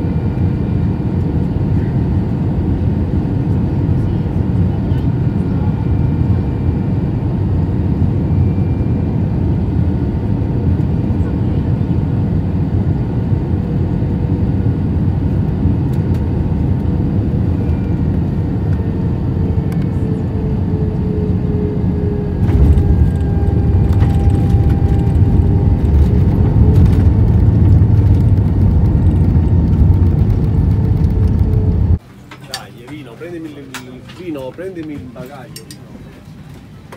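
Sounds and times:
airplane cabin rumble: 0.0s - 36.9s
deep rumble with knocks: 22.0s - 32.0s.

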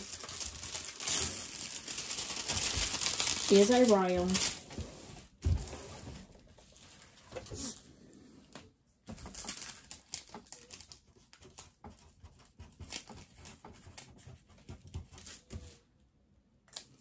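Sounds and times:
plastic packaging rustling: 0.0s - 7.8s, 9.1s - 11.8s.

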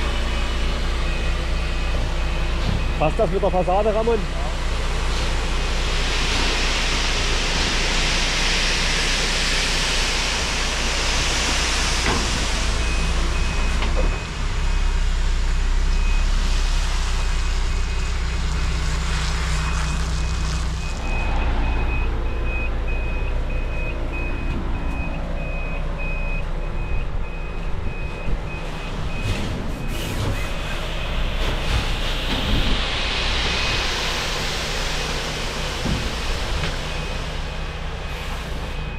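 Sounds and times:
diesel engine running: 0.0s - 38.9s
reversing alarm beeps: 0.4s - 4.1s, 12.7s - 15.0s, 20.8s - 31.4s, 36.0s - 38.9s
rushing noise: 2.8s - 14.6s, 15.4s - 38.9s.

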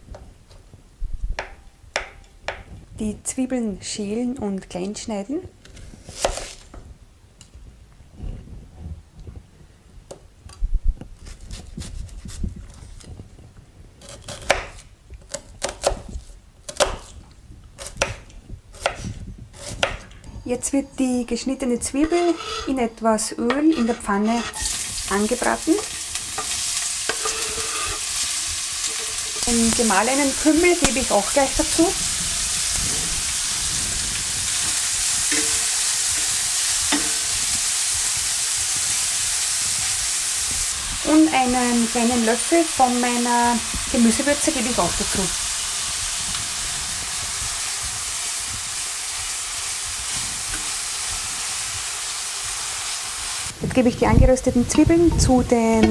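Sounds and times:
knife chopping on wooden board: 19.6s - 20.1s
onions sizzling in oil: 23.8s - 53.6s.

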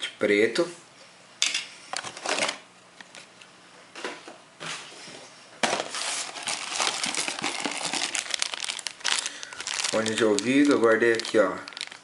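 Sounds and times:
plastic bag crinkling: 5.8s - 12.0s.

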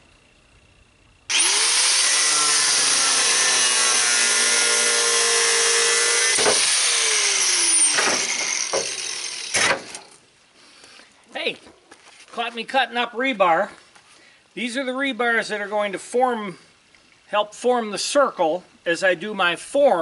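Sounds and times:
angle grinder cutting steel: 1.3s - 10.2s.

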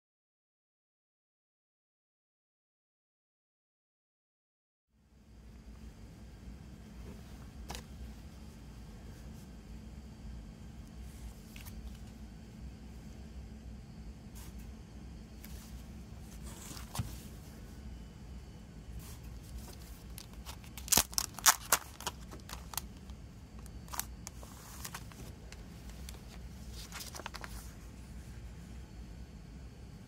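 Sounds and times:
paper and card rustling: 15.4s - 17.4s, 19.0s - 27.9s
shrink-wrap crinkling: 19.4s - 27.7s.

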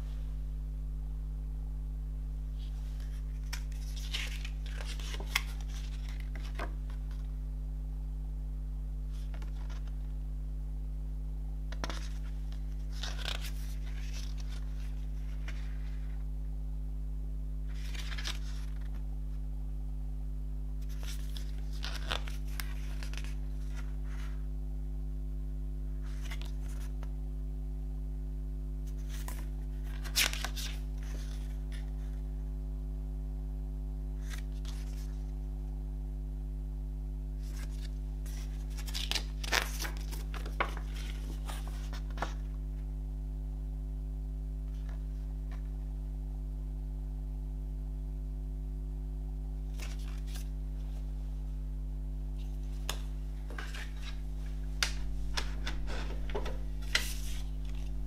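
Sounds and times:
low electrical hum: 0.0s - 58.0s
paper pages rustling: 2.6s - 7.3s, 9.1s - 10.1s, 11.7s - 16.2s, 17.7s - 19.0s, 20.8s - 24.4s, 26.0s - 27.0s, 28.9s - 32.2s, 37.4s - 42.6s, 49.7s - 51.1s, 52.4s - 58.0s.

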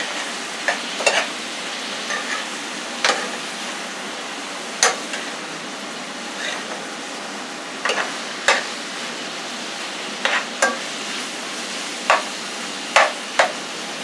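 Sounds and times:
vegetables sizzling in frying pan: 0.0s - 14.0s
metal spoon scraping pan: 2.1s - 2.5s, 6.4s - 6.8s, 7.9s - 8.7s, 10.2s - 10.8s.

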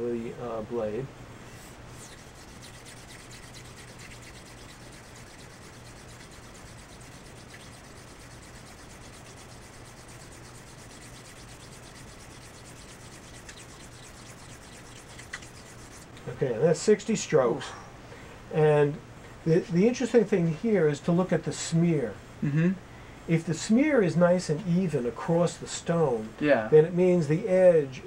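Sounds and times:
razor rubbing on wet stone: 1.6s - 16.1s.

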